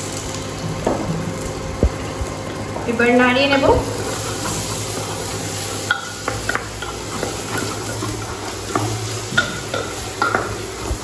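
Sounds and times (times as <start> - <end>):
food sizzling in a pot: 0.0 - 11.0
spatula scraping metal pot: 4.0 - 10.8.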